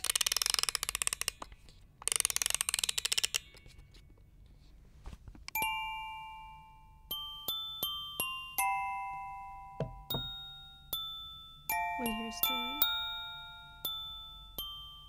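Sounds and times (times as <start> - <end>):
music box winding ratchet clicks: 0.0 - 4.0
music box chiming notes: 5.5 - 15.0.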